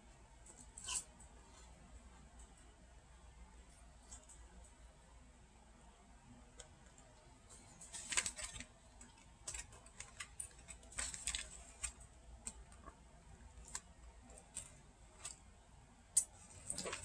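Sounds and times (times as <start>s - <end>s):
hands handling crinkling plastic: 7.5s - 15.4s, 16.2s - 17.0s.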